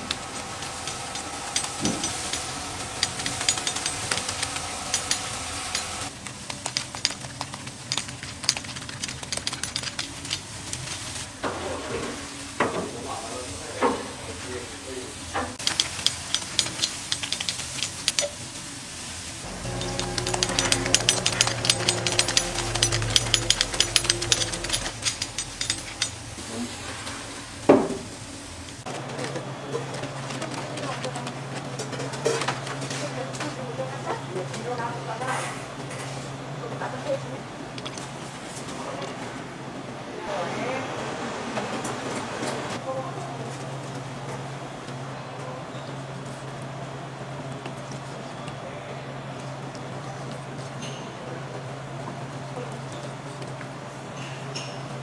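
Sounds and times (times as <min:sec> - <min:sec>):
metal rack clank: 0:00.0 - 0:06.1, 0:19.5 - 0:26.4
steady hum: 0:19.4 - 0:28.8.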